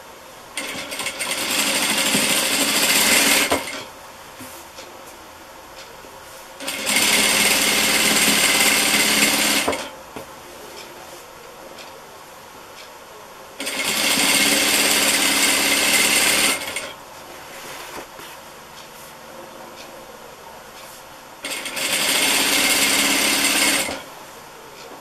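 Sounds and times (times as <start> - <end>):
sewing machine stitching: 0.6 - 3.9, 6.6 - 9.9, 13.6 - 17.0, 21.4 - 24.1.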